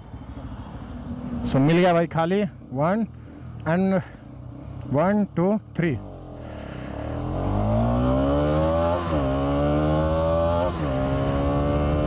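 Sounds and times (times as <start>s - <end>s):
motorcycle engine at full throttle: 4.0s - 12.0s.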